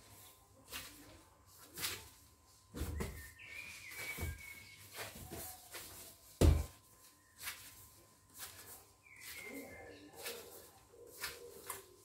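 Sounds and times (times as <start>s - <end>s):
dough thumping on countertop: 6.4s - 6.8s.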